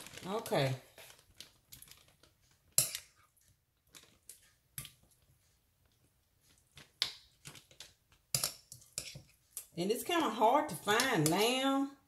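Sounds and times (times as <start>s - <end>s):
plastic bag crinkles and snaps: 0.0s - 2.6s.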